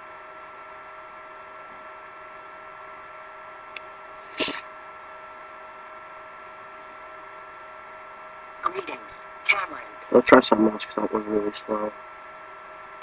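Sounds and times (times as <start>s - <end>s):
steady electrical hum: 0.0s - 13.0s
person sneezing: 4.3s - 4.6s.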